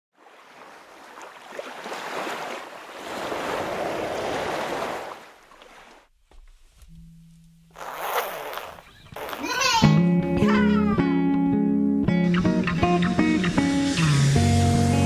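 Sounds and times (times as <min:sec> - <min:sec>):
ocean surf washing in: 0:02.0 - 0:05.3.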